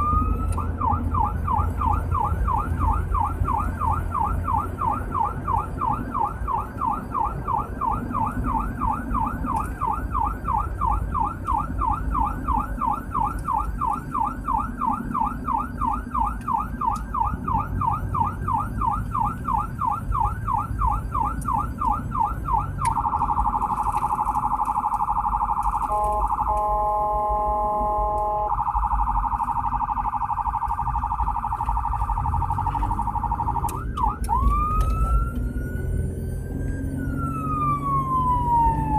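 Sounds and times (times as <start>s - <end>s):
electronic siren: 0.0s - 38.9s
vehicle horn: 25.9s - 28.6s.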